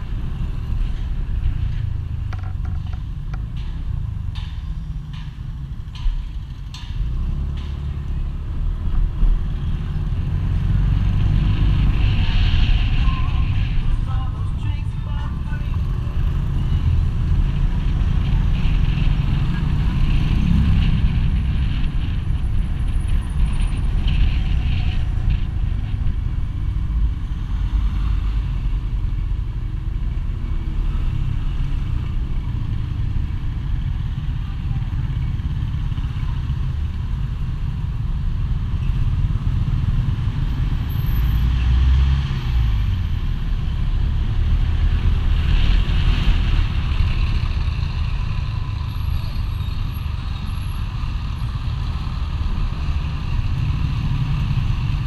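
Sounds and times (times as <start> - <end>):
wind rumble on microphone: 8.4 - 14.6, 15.3 - 40.9.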